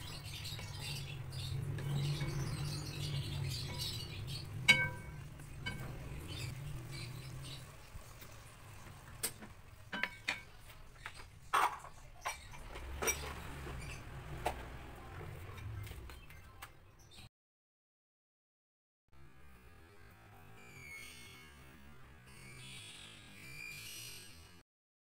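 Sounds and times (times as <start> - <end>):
spatula stirring food in wok: 0.0 - 16.2
spatula clinking on metal wok: 3.6 - 6.1, 9.9 - 10.5.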